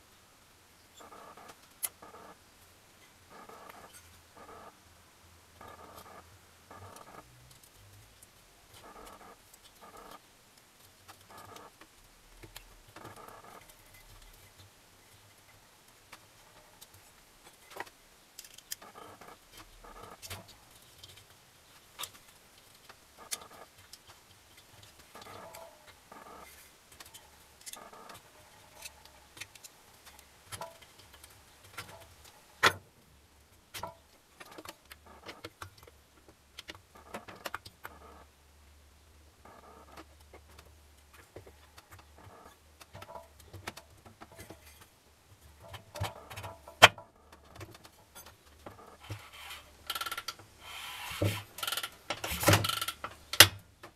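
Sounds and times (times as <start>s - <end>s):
metal scraping: 49.0s - 49.9s, 50.6s - 52.8s.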